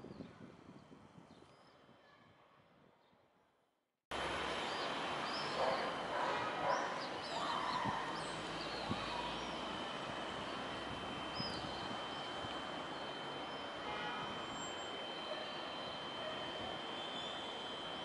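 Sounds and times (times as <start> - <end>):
city background noise: 4.1 - 18.0.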